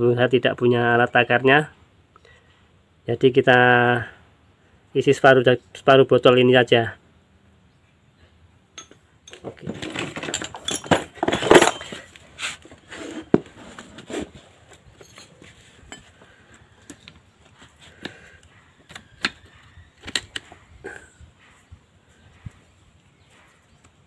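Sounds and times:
metal parts clinking and knocking: 8.8s - 13.4s, 14.7s - 17.2s, 18.8s - 20.6s.

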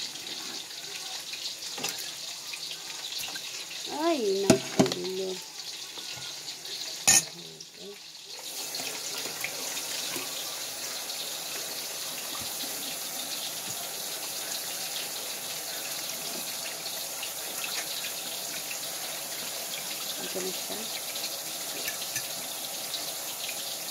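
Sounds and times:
water boiling and bubbling: 0.0s - 23.9s.

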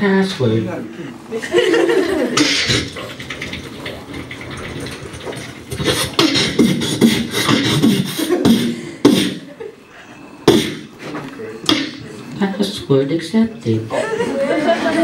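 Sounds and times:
beatboxing into a microphone: 2.4s - 4.0s, 4.8s - 9.5s, 10.5s - 11.0s, 11.6s - 12.1s.

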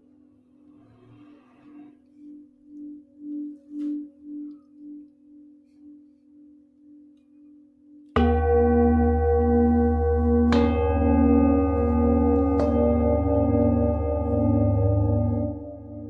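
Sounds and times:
singing bowl humming: 1.6s - 16.0s
loud ringing metal strike: 8.2s - 16.0s.

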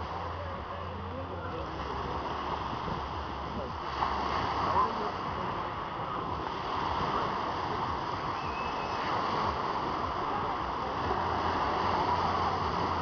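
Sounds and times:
waves breaking on pebble beach: 1.6s - 13.0s.

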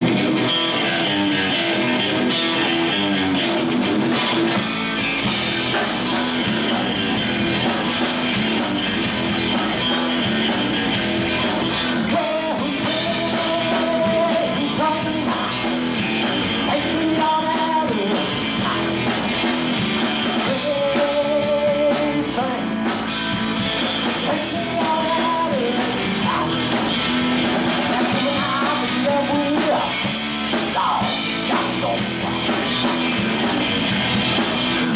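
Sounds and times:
bass guitar: 0.0s - 34.9s
drum kit: 0.0s - 34.9s
electric guitar: 0.0s - 34.9s
man singing: 11.9s - 15.7s, 16.6s - 19.2s, 20.4s - 23.0s, 24.2s - 26.9s, 27.7s - 32.6s.

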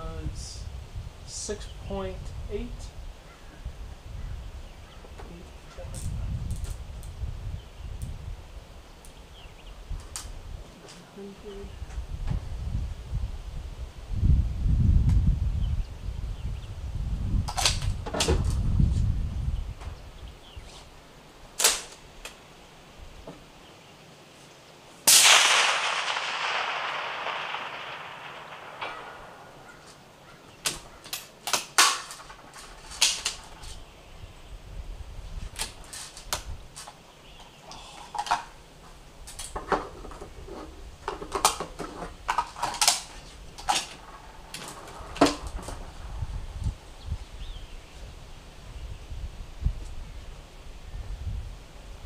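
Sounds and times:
suppressed rifle shot: 25.1s - 30.4s.

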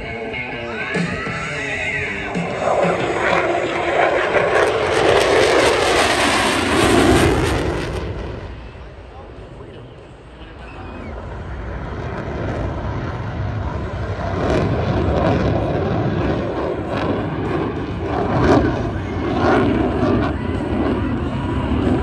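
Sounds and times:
fighter jet flying over: 0.0s - 22.0s.

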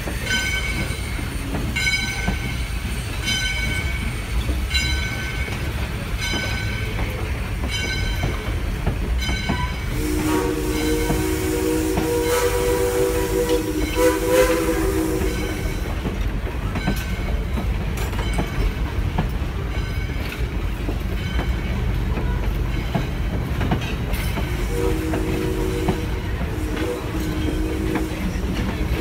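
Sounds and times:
train cars clattering over rails: 0.0s - 29.0s
steam locomotive whistle: 9.8s - 15.9s, 24.5s - 29.0s.

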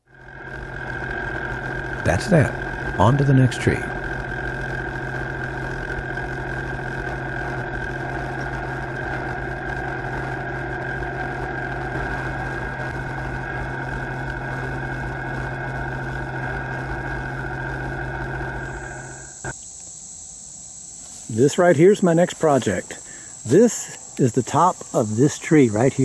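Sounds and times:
tractor diesel engine running: 0.0s - 19.5s.

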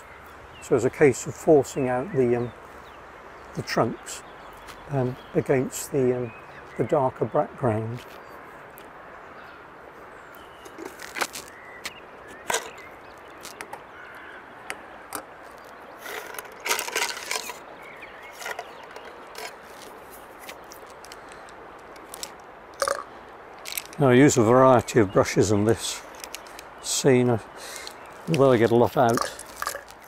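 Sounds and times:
brush handles clicking and knocking: 18.4s - 23.0s, 23.6s - 24.0s, 28.3s - 30.0s.

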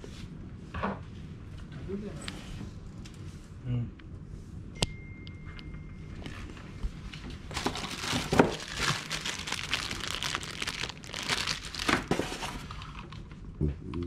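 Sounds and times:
plastic bags crinkling: 7.5s - 13.2s.

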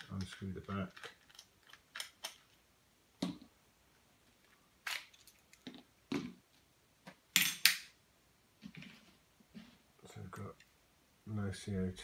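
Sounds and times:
pistol parts clicking and knocking: 7.3s - 7.9s.

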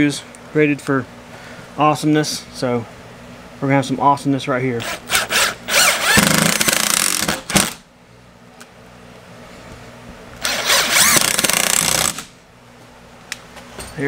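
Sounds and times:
impact driver hammering screws: 4.8s - 7.8s, 10.4s - 12.3s.

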